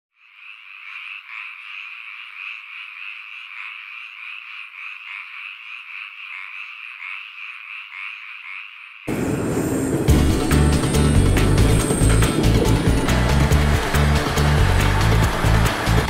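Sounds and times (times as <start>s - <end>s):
chorus of frogs croaking: 0.1s - 9.1s.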